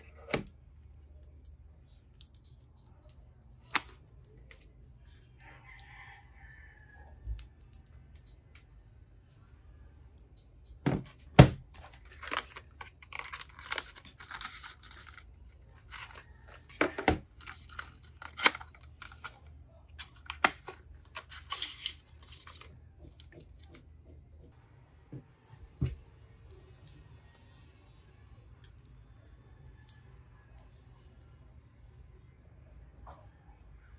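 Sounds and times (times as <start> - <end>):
plastic film peeling and crinkling: 11.1 - 23.6.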